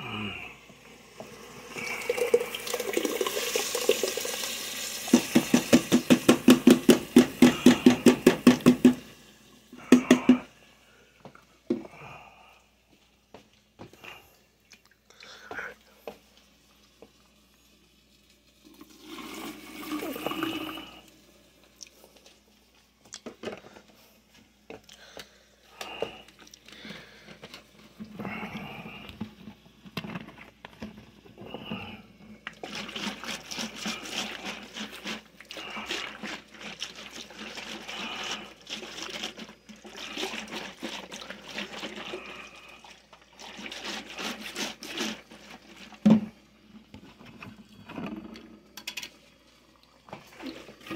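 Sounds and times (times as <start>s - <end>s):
liquid pouring: 0.8s - 10.4s, 16.4s - 22.3s, 31.7s - 50.9s.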